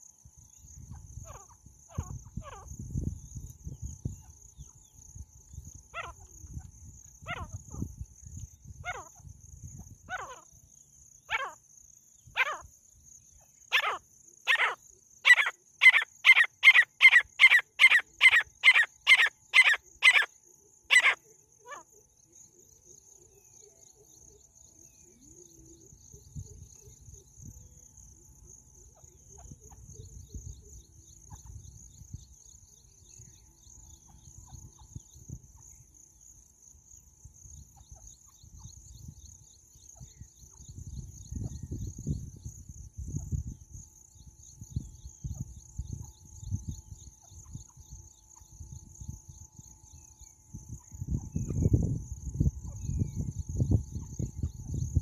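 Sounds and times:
francolin calling: 0.0s - 36.2s.

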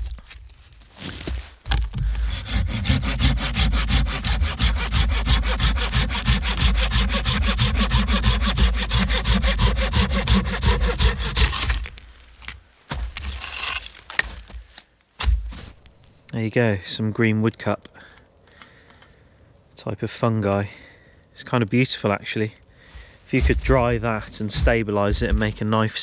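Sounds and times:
hand saw cutting log: 2.0s - 12.0s.

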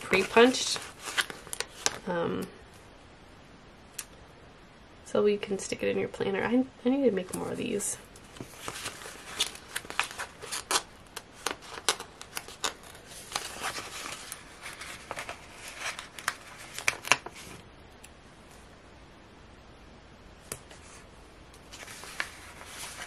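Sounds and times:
paper rustling: 0.0s - 2.0s, 8.2s - 17.6s, 21.7s - 23.0s.

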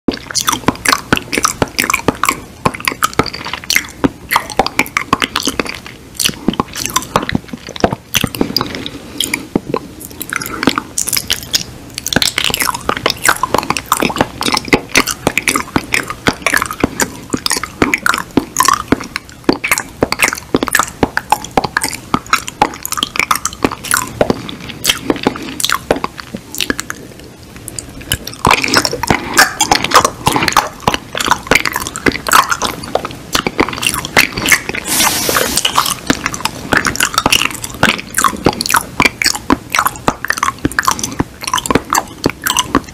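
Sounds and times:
lip smacks and mouth clicks: 0.1s - 42.9s
man chewing with empty mouth: 0.1s - 42.9s
breathy hiss: 34.8s - 35.9s.

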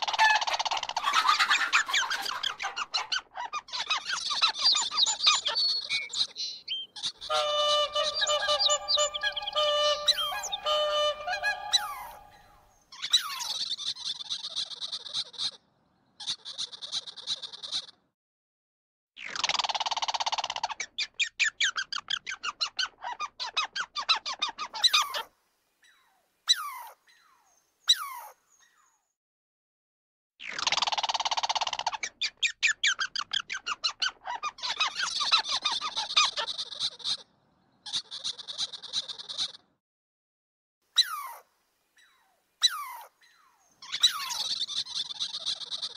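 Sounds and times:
rapid animal chirping: 1.9s - 15.4s, 42.0s - 45.9s
whistled animal calls: 4.6s - 13.6s, 42.0s - 45.9s
squirrel buzzing trills: 7.3s - 12.6s.

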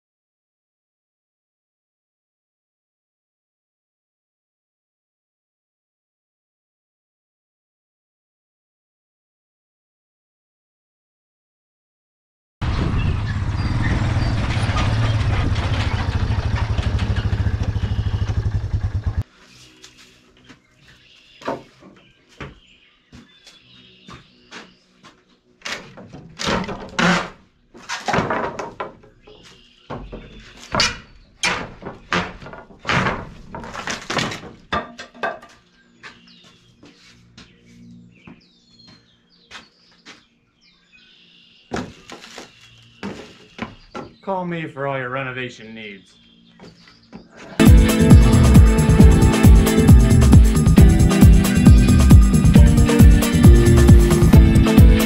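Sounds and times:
loud steady rumble: 12.6s - 19.2s
wooden boards being torn out: 25.6s - 29.1s, 30.6s - 34.7s.

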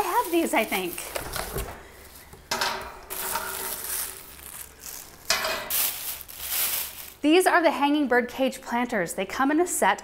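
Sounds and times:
paper and plastic wrap crinkling: 0.0s - 2.5s, 3.1s - 7.3s.

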